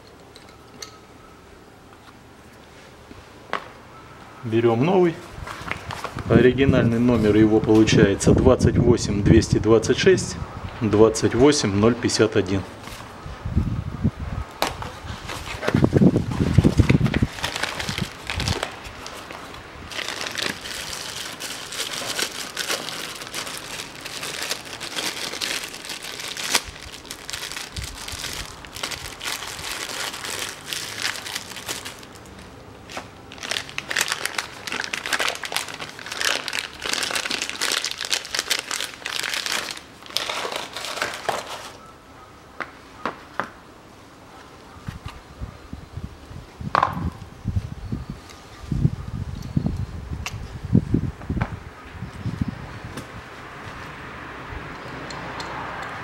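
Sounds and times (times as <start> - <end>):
plastic bag crinkling: 15.4 - 41.8.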